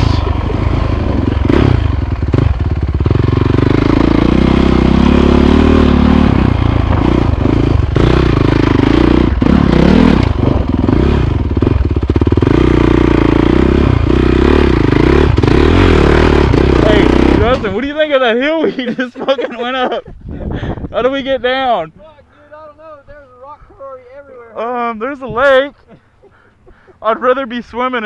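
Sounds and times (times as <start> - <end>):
dirt bike engine revving: 0.0 - 18.1.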